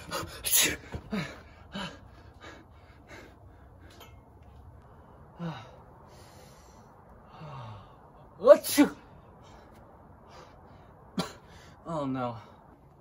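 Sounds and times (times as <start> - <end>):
man gasping and breathing heavily: 0.0 - 4.1, 5.2 - 8.2.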